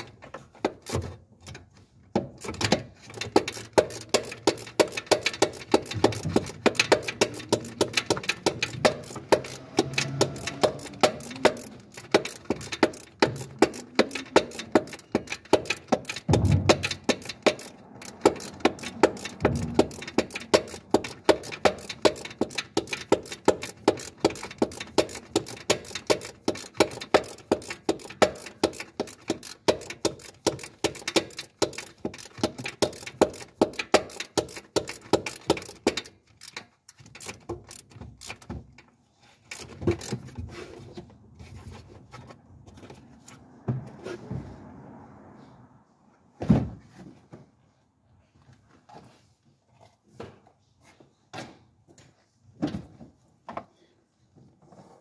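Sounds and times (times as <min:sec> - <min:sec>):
knocks and clunks: 0:00.0 - 0:44.8
ratchet wrench clicking: 0:02.1 - 0:40.6.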